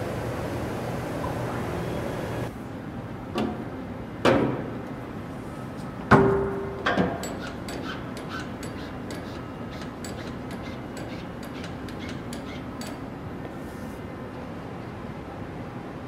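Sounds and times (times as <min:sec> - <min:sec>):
machine hum: 0:00.0 - 0:02.7.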